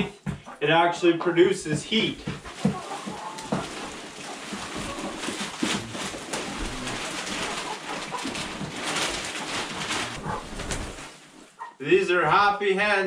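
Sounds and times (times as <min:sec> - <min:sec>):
hens clucking softly: 0:02.3 - 0:11.0
wood shavings pouring rustling: 0:02.5 - 0:11.6.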